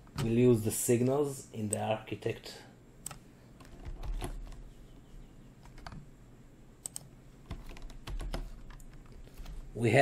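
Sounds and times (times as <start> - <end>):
typing on computer keyboard: 3.0 - 4.6, 5.6 - 6.0, 6.8 - 9.2.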